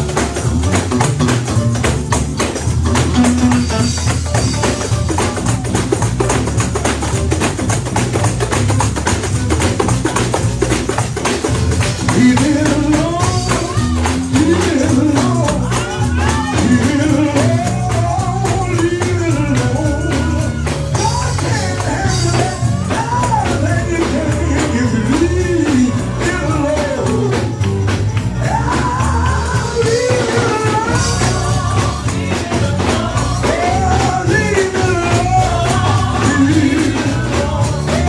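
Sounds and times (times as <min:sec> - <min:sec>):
gospel band playing: 0:00.0 - 0:38.0
man singing into a microphone: 0:12.0 - 0:27.7, 0:28.4 - 0:38.0.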